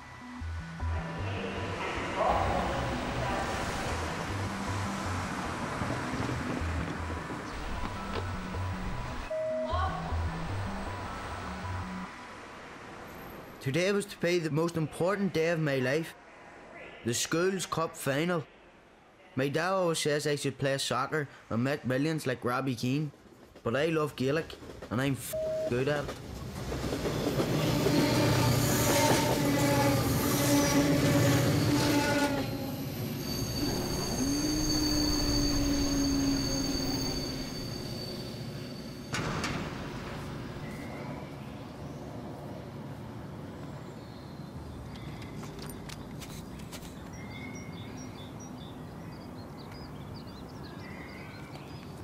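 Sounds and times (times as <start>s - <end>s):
train rushing through station: 0.0s - 15.6s, 23.1s - 44.9s
rising tone: 6.6s - 13.0s
whining tones: 27.6s - 41.2s
birds chirping: 43.4s - 52.0s.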